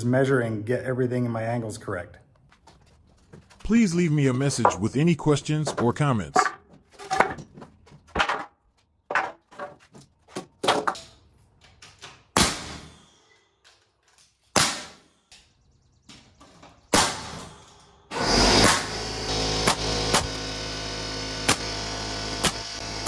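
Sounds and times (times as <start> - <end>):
wood boards knocking on concrete: 4.6 - 4.9, 5.6 - 11.1
nail gun bang and hiss: 12.4 - 13.2, 14.5 - 15.1, 16.9 - 19.0
air compressor humming: 18.2 - 23.0.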